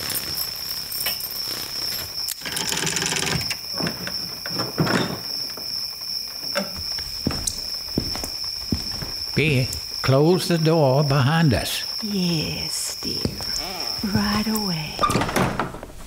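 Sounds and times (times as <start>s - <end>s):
high insect drone: 0.0s - 16.0s
door creak: 2.0s - 5.7s, 13.4s - 16.0s
door rattle: 14.3s - 16.0s.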